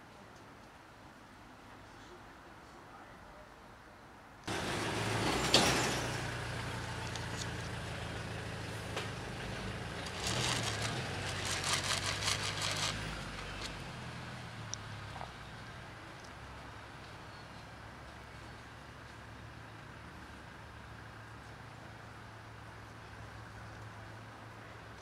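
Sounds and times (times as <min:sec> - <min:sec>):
vehicle engine humming: 0:04.5 - 0:25.0
rapid clicks and rattles: 0:08.9 - 0:13.8.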